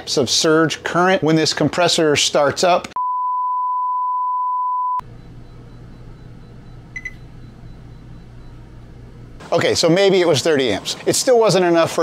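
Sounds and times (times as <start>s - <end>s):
short electronic beep: 3.0s - 8.6s
low hum: 4.8s - 9.4s.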